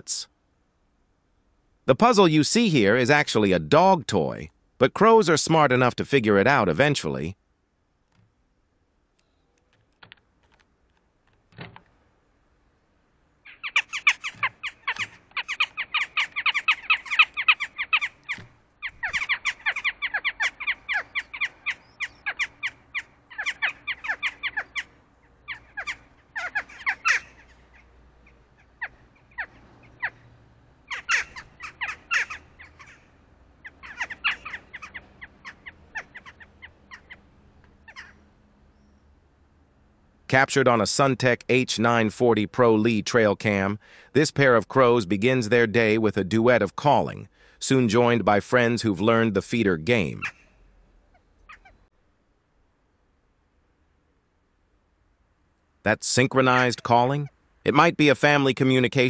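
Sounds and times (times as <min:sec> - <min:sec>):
jackdaws calling: 0:13.4 - 0:39.2, 0:50.0 - 0:51.9, 0:56.3 - 0:57.9.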